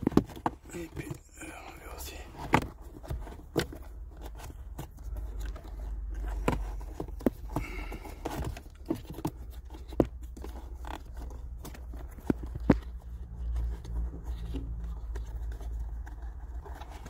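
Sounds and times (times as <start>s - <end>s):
plastic parts clicking and scraping: 0.0s - 1.2s, 2.2s - 17.0s.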